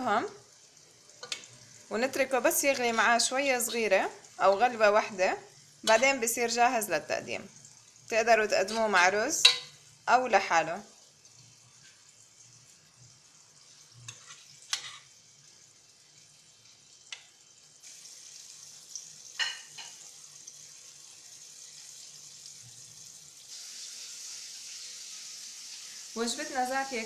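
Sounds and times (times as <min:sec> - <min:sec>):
sauce simmering hiss: 0:00.0 - 0:06.6, 0:10.8 - 0:27.0
spoon clinking against pot: 0:09.4 - 0:09.8.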